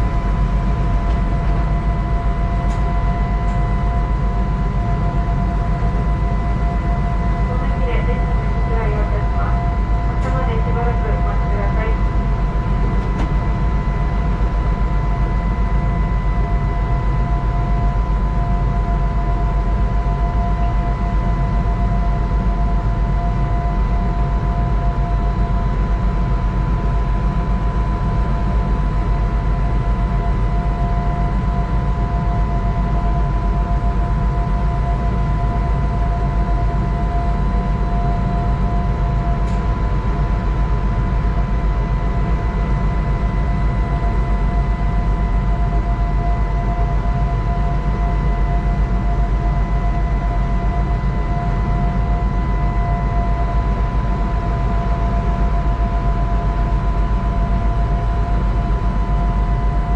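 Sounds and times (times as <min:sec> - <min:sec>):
train machinery humming: 0:00.0 - 0:15.4
constant whining tones: 0:00.0 - 0:24.8.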